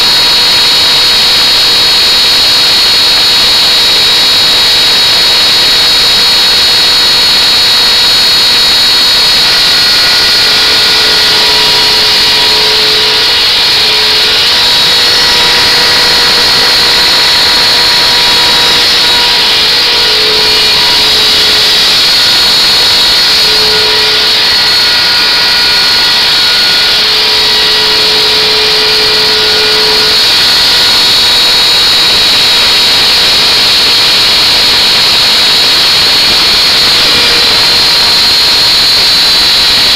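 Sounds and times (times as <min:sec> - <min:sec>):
router spindle high whine: 0:00.0 - 0:39.9
faint pitched tones: 0:08.4 - 0:31.1.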